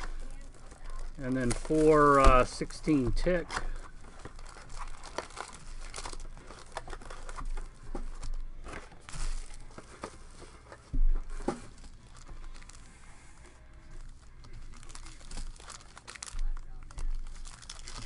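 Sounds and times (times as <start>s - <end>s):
foil packs crinkling: 0.0s - 18.0s.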